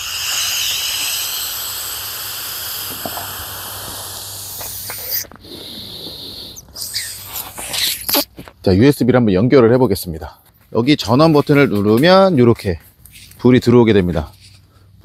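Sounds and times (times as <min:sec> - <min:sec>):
breath blown into a valve: 0:00.0 - 0:08.3.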